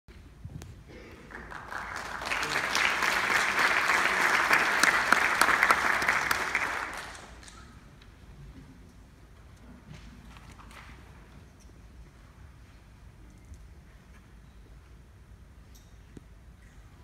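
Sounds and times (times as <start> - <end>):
audience applauding: 1.2 - 7.7.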